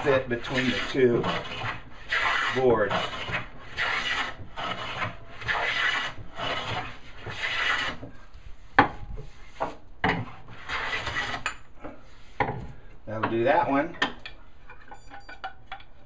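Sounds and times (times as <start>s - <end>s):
hand plane shaving wood: 0.0s - 8.1s, 9.2s - 11.5s.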